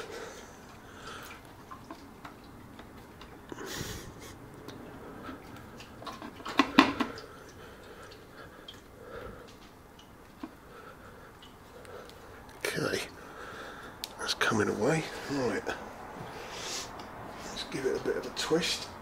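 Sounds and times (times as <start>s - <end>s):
short hiss: 16.4s - 17.0s.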